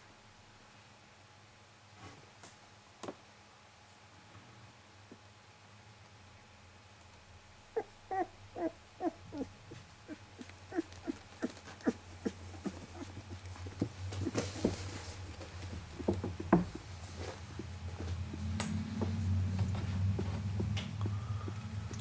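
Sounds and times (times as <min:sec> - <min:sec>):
puppies squeaking and grunting: 0:07.8 - 0:18.6, 0:19.7 - 0:22.0
bedding rustling: 0:09.4 - 0:21.6.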